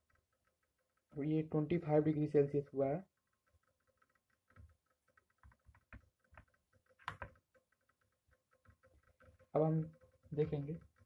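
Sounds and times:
water ticking as it heats: 0.0 - 11.0.

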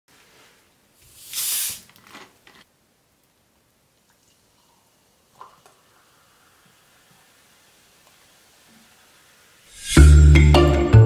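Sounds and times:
bottle cap hiss: 1.0 - 2.0, 9.7 - 10.0
soda fizzing crackles: 1.1 - 1.9, 4.0 - 9.9.

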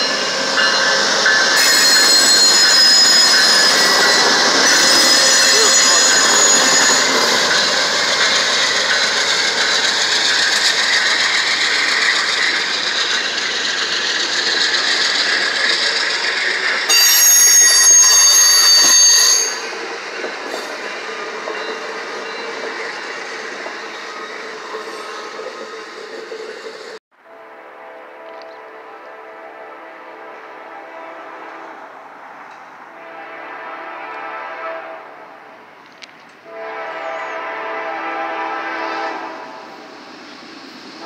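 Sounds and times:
shrill high squeal: 0.0 - 7.9, 16.9 - 19.8
train wheels rolling and squealing: 0.0 - 27.0.

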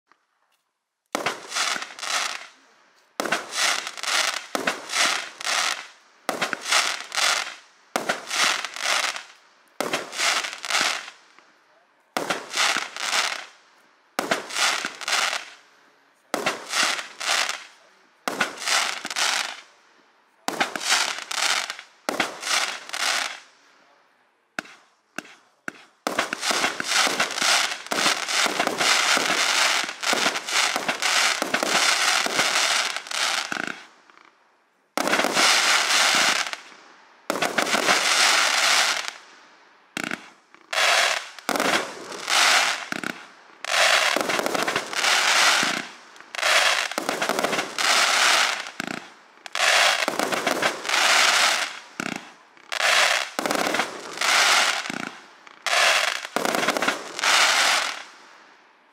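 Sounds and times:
fireworks firing: 1.1 - 15.6, 16.2 - 19.8, 20.4 - 23.6, 24.6 - 58.4
fizzing firework crackle: 3.2 - 11.3.

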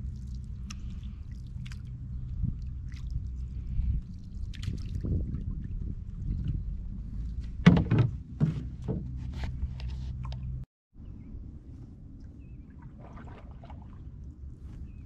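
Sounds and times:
steady low rumble: 0.0 - 15.0
hollow knocks on a canoe hull: 7.6 - 9.3.

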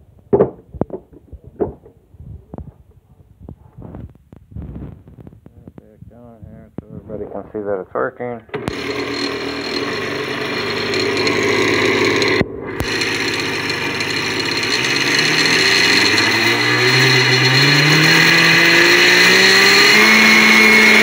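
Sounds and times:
blender click: 8.5 - 11.4
blender motor running: 8.5 - 21.0.

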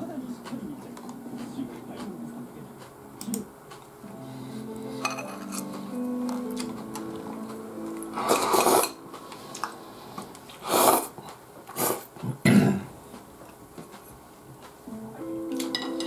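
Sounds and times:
soup slurping: 10.5 - 11.2.

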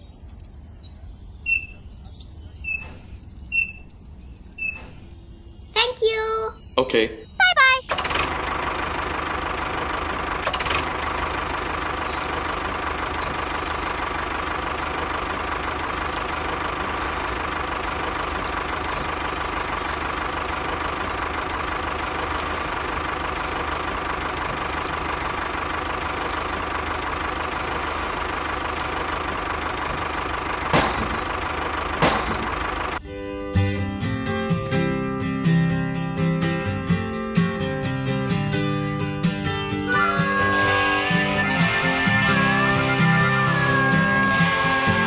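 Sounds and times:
small tractor engine drone: 0.1 - 5.6, 7.6 - 45.0
sharp clicks: 13.2 - 14.2, 19.7 - 22.9, 23.5 - 27.1, 28.5 - 31.3.

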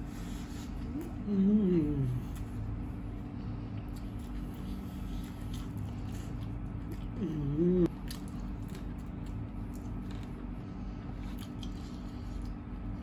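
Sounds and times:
quiet eating sounds: 0.0 - 13.0
steady low hum: 0.0 - 13.0
person humming mm: 1.0 - 2.4, 7.2 - 7.9.

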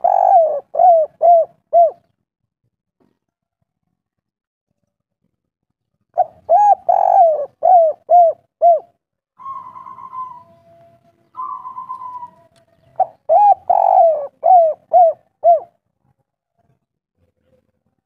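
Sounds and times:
dove rolling purrs: 0.0 - 2.0, 6.2 - 8.8, 13.0 - 15.7
dove cooing: 0.0 - 2.1, 6.2 - 15.8.

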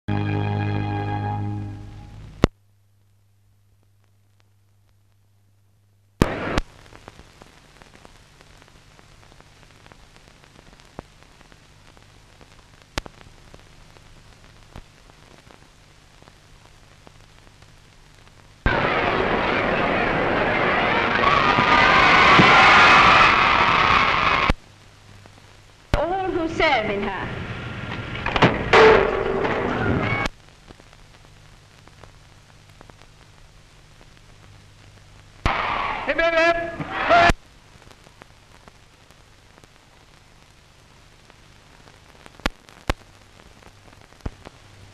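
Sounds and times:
film soundtrack hiss and hum: 0.1 - 44.9
crackles and pops: 1.9 - 44.9
crowd cheering and applauding: 18.7 - 24.5, 35.5 - 37.3.

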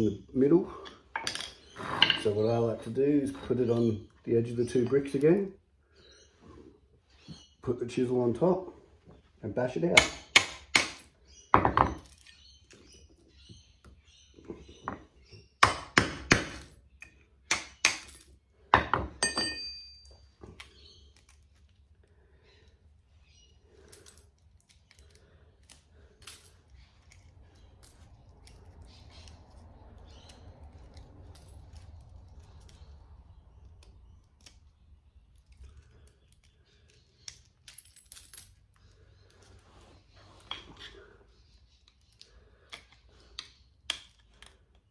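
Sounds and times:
hammer striking chisel on metal: 10.0 - 11.0, 17.5 - 18.1, 18.8 - 20.0.

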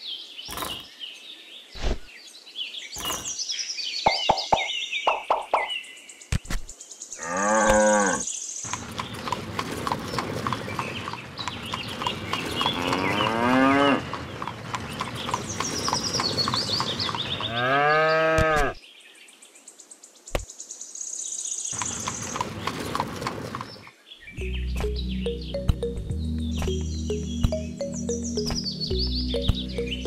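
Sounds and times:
high bird-like chirps: 2.8 - 5.9, 24.3 - 30.0
cattle mooing: 7.2 - 8.2, 12.6 - 14.2, 17.5 - 18.8.

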